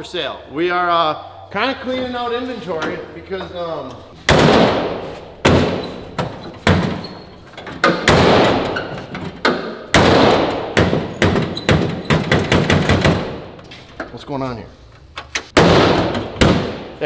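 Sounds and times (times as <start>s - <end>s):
truck hood slamming: 4.3s - 13.6s, 15.6s - 16.9s.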